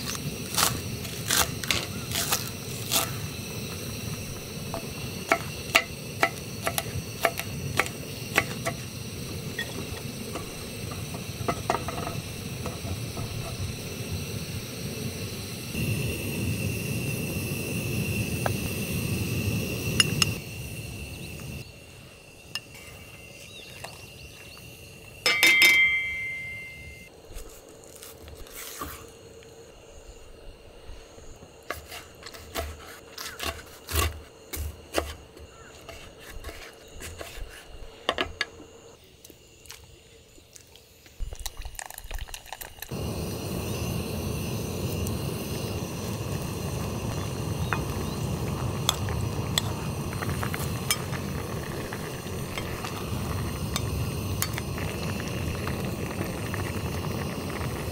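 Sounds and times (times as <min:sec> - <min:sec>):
gas burner hissing: 0:00.0 - 0:27.1, 0:40.8 - 0:57.9
metal cookware clinking: 0:25.2 - 0:27.0.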